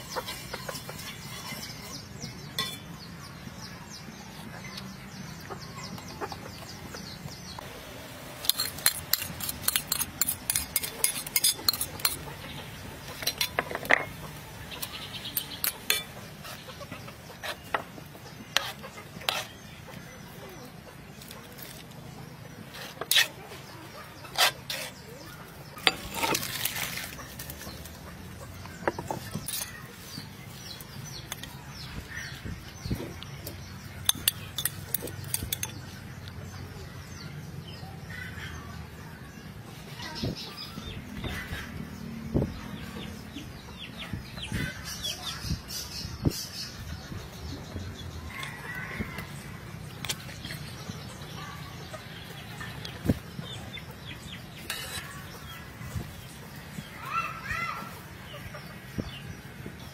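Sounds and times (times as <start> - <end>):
metal ladle clinking on pot: 2.6 - 2.9.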